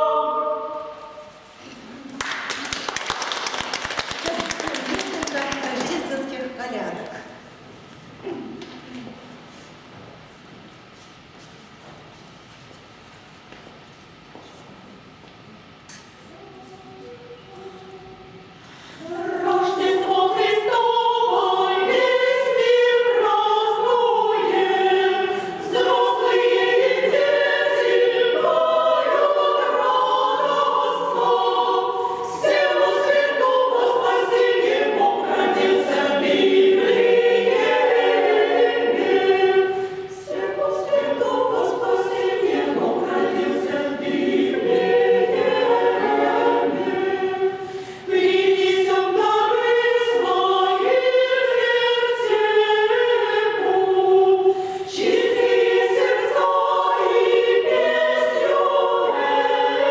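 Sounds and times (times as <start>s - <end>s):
women's choir chanting: 0.0s - 1.5s, 19.0s - 59.9s.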